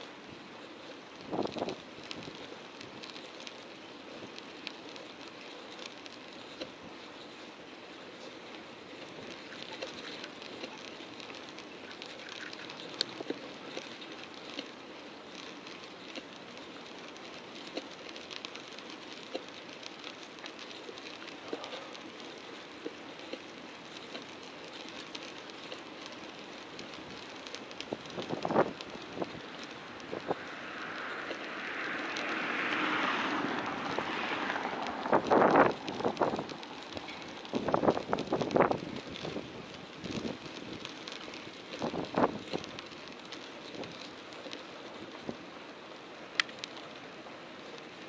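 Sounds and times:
bicycle clicks and rattles: 0.0s - 48.0s
bicycle tyres hissing on road: 0.0s - 48.0s
wind on microphone: 1.3s - 2.4s, 27.9s - 40.9s.

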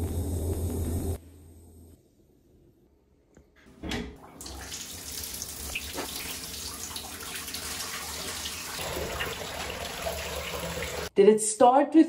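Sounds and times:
bath tap running into bathtub: 4.2s - 11.1s.

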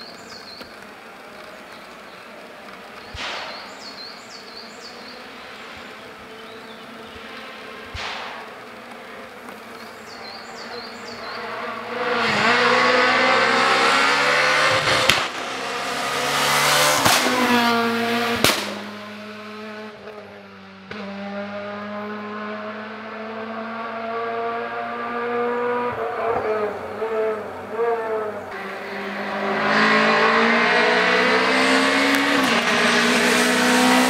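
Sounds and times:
sharp cracks: 0.3s - 4.6s, 7.3s - 9.8s, 14.6s - 15.7s, 16.5s - 17.7s, 18.4s - 19.0s
rally car engine revving: 0.3s - 34.0s.

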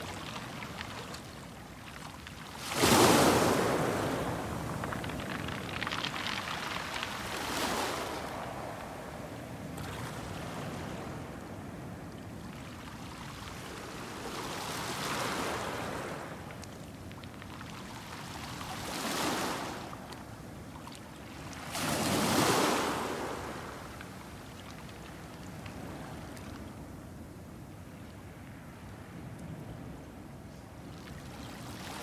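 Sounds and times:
waves washing on pebble shore: 2.5s - 8.6s.

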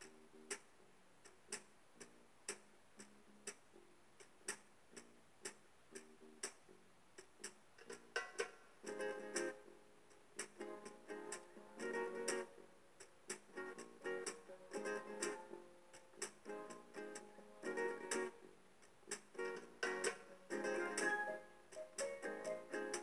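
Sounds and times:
sharp percussive clicks: 0.0s - 3.6s, 4.2s - 6.6s, 10.1s - 10.6s, 11.3s - 14.4s, 18.1s - 20.3s.

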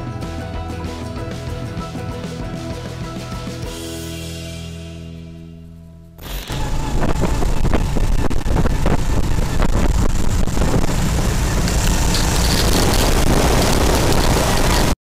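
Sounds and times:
snowmobile engine under load: 6.2s - 15.0s
wind noise on microphone: 6.4s - 15.0s.

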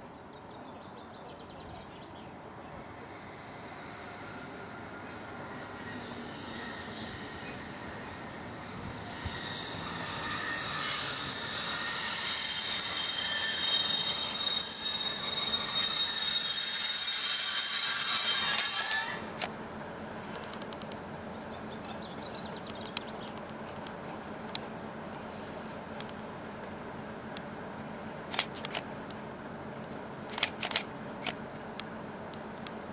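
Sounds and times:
diesel locomotive approaching: 0.0s - 32.9s
high-pitched whistling tones: 4.8s - 19.8s.

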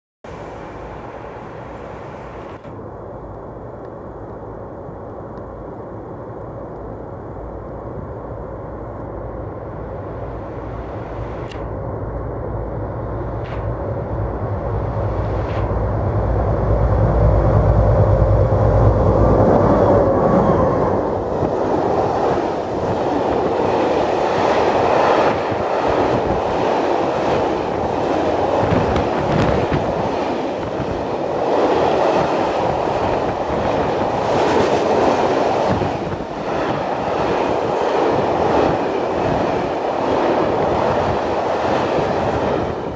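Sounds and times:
diesel locomotive engine drone: 0.3s - 42.9s
train wheels rumbling on rails: 9.4s - 42.9s.

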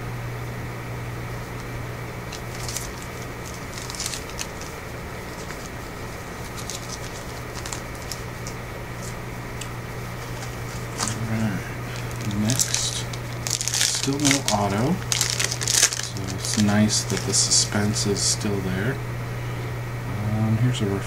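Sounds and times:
steady low hum: 0.0s - 21.0s
trading cards clicking: 2.3s - 11.2s, 11.9s - 17.6s.

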